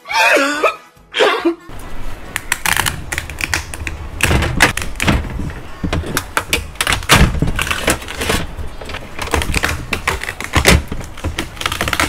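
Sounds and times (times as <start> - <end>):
lobster shell cracking: 2.4 - 5.1, 9.2 - 12.0.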